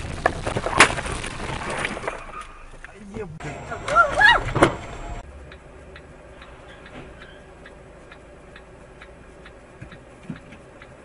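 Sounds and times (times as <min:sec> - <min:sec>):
low steady hum: 0:02.5 - 0:11.0
faint regular ticking: 0:05.2 - 0:11.0.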